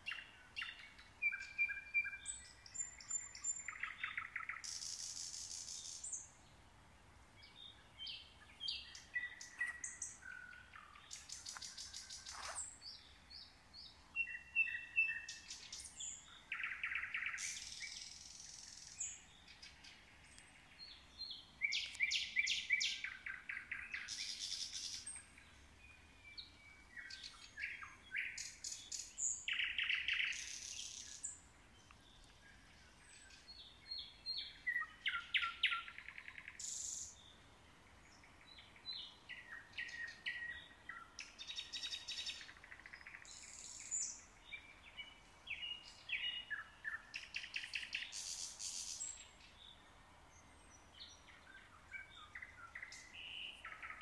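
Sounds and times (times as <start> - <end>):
songbirds whistling and trilling: 0.0 - 6.5, 7.4 - 54.0.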